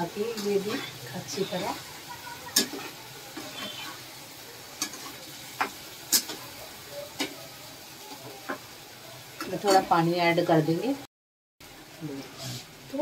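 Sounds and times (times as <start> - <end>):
gravy sizzling in a pan: 0.0 - 13.0
spatula clacking against pan: 2.5 - 3.6, 4.8 - 6.4.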